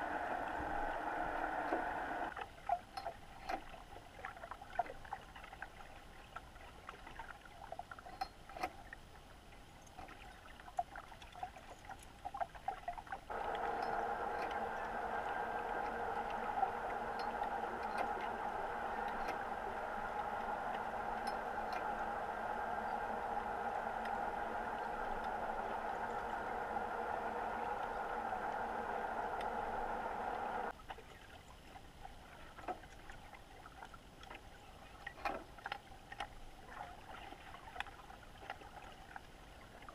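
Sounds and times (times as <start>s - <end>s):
steady motor hum: 0.0s - 2.4s, 13.3s - 30.8s.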